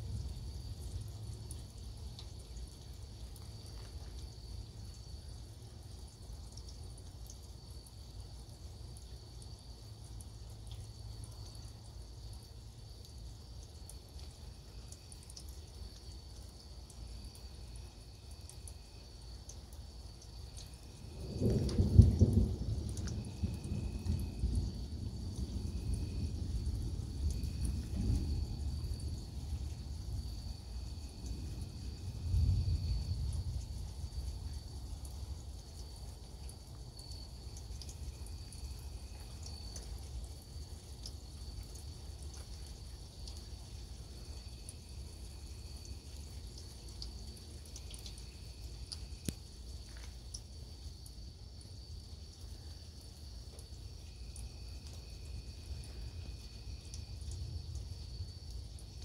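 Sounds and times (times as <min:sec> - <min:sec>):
light rain patter and drip: 0:00.0 - 0:59.0
rolling thunder with crack: 0:21.2 - 0:29.6.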